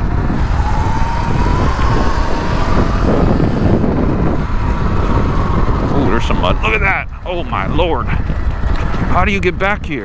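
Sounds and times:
rough rumble of knobby tyres: 0:00.0 - 0:10.0
electric motor whine: 0:00.2 - 0:06.4.

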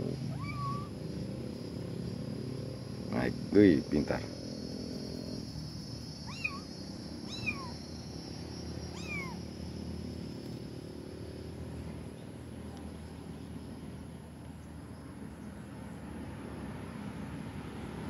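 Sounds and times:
kitten meowing: 0:00.3 - 0:00.9, 0:06.2 - 0:07.8, 0:08.9 - 0:09.4.

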